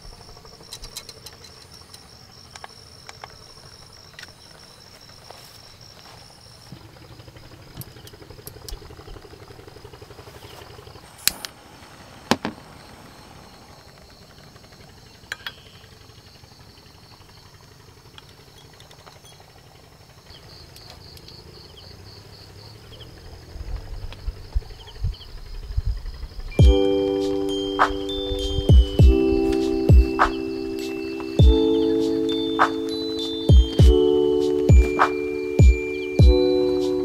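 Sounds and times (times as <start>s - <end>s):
insect chirring: 0.0s - 37.0s.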